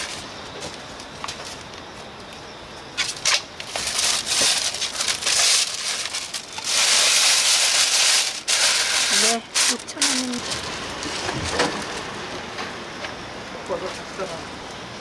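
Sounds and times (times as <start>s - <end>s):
packaging crinkling and rustling: 3.0s - 12.0s.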